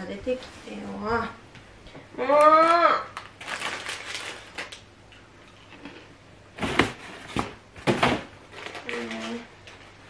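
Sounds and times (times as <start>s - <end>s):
plastic crackle: 2.6s - 4.9s, 5.7s - 10.0s
plastic packaging rustling: 3.1s - 4.9s, 5.6s - 10.0s.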